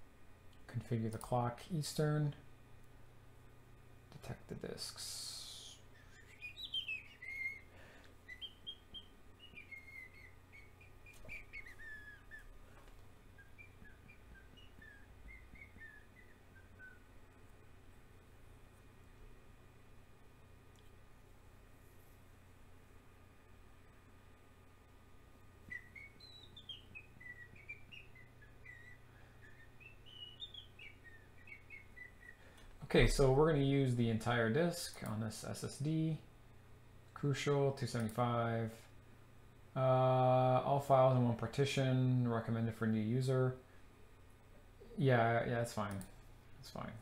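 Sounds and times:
low background hum: 0:00.0 - 0:47.0
faint bird chirps: 0:05.0 - 0:17.2, 0:25.6 - 0:33.2.

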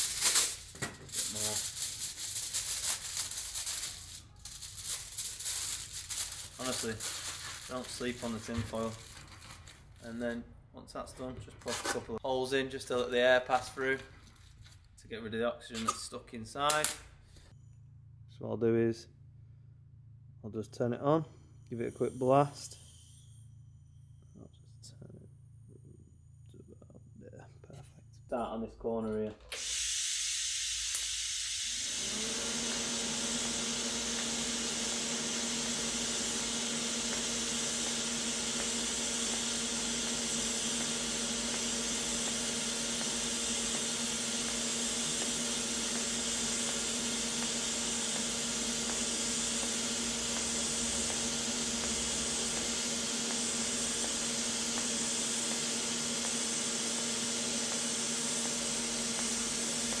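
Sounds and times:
welding arc hissing: 0:00.0 - 0:10.0, 0:29.6 - 1:00.0
low hum: 0:17.1 - 0:28.7.

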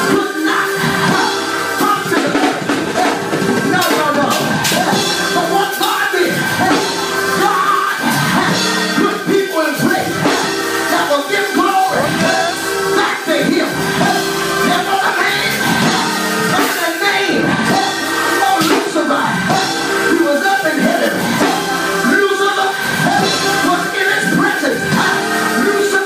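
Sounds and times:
instrumental backing with held chords: 0:00.0 - 0:26.0
man singing into microphone: 0:00.0 - 0:26.0.

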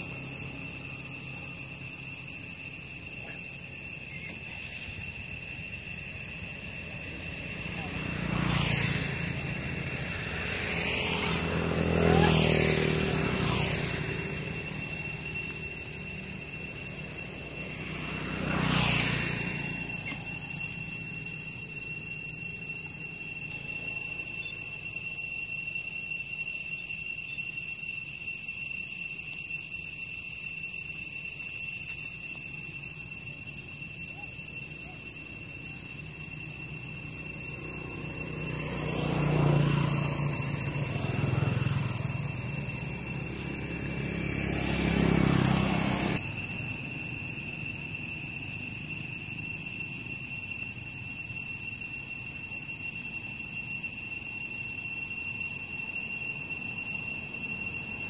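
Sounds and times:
steady high-pitched whine: 0:00.0 - 0:58.0
vehicle engine passing: 0:07.2 - 0:16.4, 0:17.2 - 0:20.5, 0:37.5 - 0:46.3.

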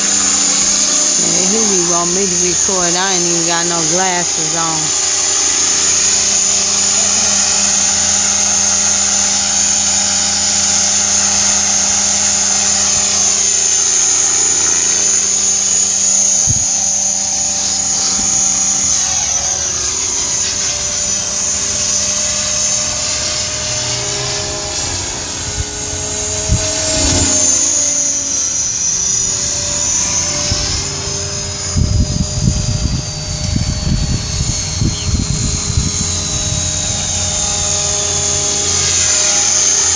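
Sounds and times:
model helicopter motor whine: 0:00.0 - 0:39.9
wind buffeting microphone: 0:24.4 - 0:39.9.

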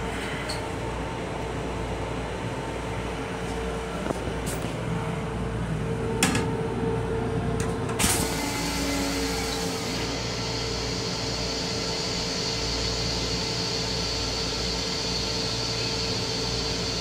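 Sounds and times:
train rumble and hum: 0:00.0 - 0:10.5.

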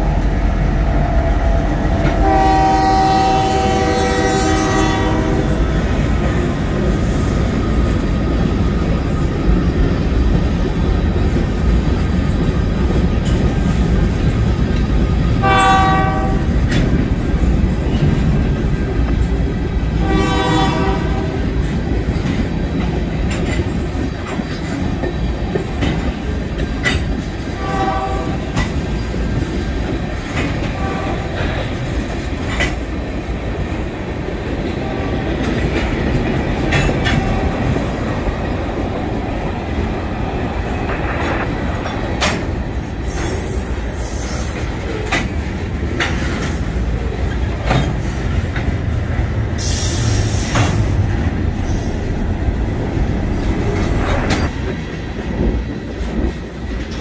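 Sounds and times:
freight train rumbling: 0:00.0 - 0:57.0
locomotive horn blasts: 0:02.0 - 0:05.8, 0:15.4 - 0:16.6, 0:20.0 - 0:21.4, 0:27.6 - 0:28.6, 0:30.6 - 0:31.5
wheels clicking over rail joints: 0:21.0 - 0:39.7, 0:40.7 - 0:57.0.

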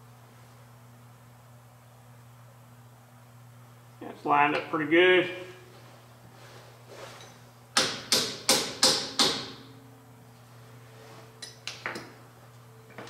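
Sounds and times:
hammer striking steel driver: 0:07.8 - 0:09.6.

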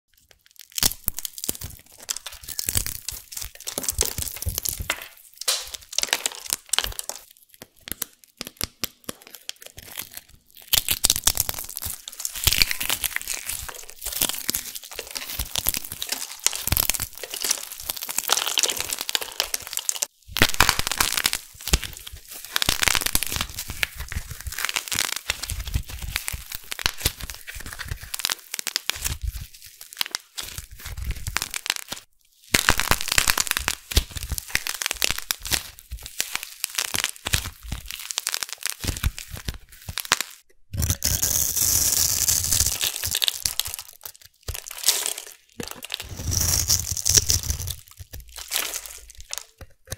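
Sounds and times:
hands crushing crunchy soap: 0:00.2 - 0:49.9.

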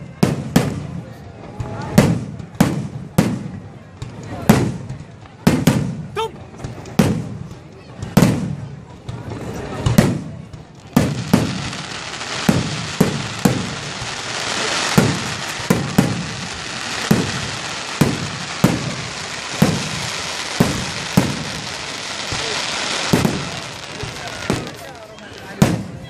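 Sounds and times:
continuous hiss: 0:08.8 - 0:26.0
firework shells bursting: 0:09.8 - 0:26.0.

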